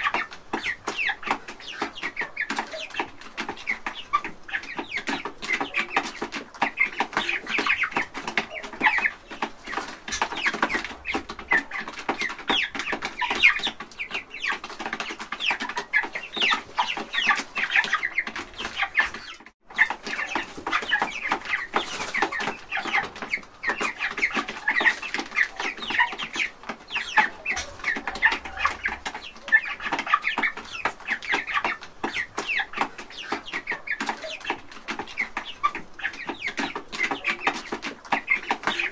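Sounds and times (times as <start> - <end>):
chicks chirping: 0.0 - 38.9.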